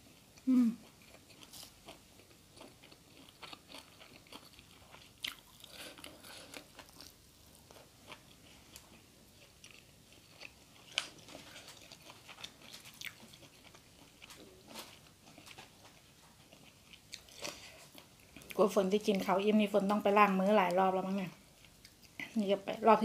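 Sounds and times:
person chewing crunchy food: 0:00.4 - 0:18.6.

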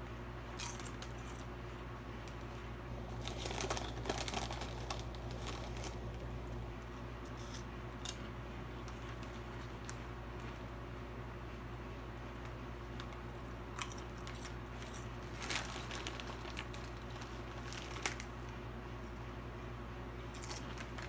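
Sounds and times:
low hum: 0:00.0 - 0:21.0
chip bag crinkling: 0:00.5 - 0:01.5, 0:02.3 - 0:10.7, 0:12.4 - 0:18.6, 0:20.3 - 0:21.0
chips crunching: 0:00.5 - 0:01.5, 0:03.0 - 0:06.7, 0:12.4 - 0:18.5, 0:20.3 - 0:21.0.

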